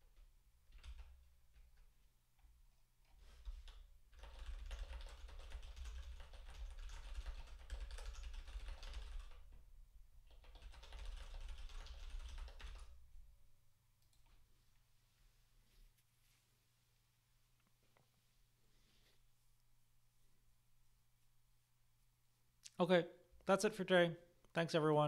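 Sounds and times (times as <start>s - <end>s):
typing on computer keyboard: 0.1s - 1.9s, 3.2s - 9.6s, 10.2s - 13.0s.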